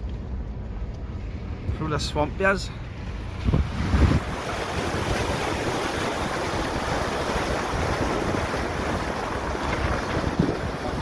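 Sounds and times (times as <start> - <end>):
tyres sloshing through muddy water: 2.8 - 11.0.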